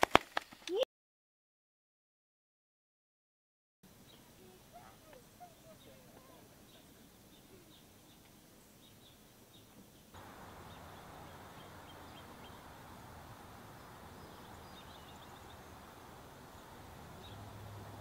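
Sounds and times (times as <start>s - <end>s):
steady outdoor hiss: 3.8s - 18.0s
small birds chirping: 3.9s - 18.0s.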